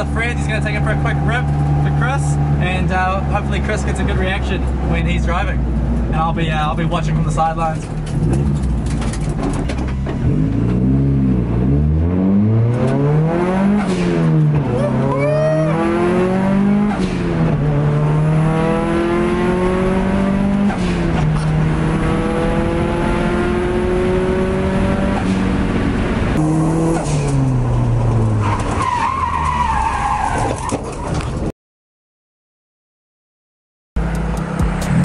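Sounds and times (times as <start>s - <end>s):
car engine accelerating hard: 8.0s - 30.2s, 34.0s - 35.0s.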